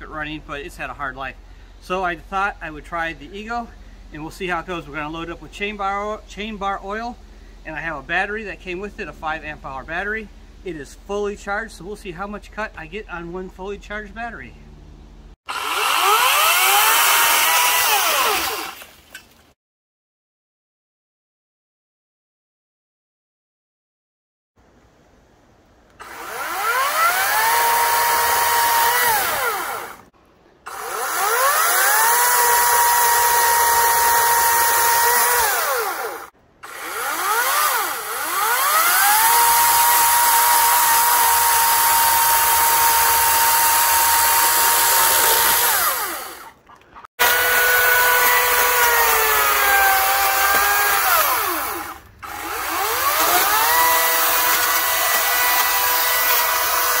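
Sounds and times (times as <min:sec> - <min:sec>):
electric chainsaw whine: 0:15.5 - 0:19.0, 0:26.0 - 0:46.6, 0:47.2 - 0:57.0
chain cutting through wood: 0:15.5 - 0:19.4, 0:26.0 - 0:30.1, 0:30.7 - 0:46.6, 0:47.2 - 0:57.0.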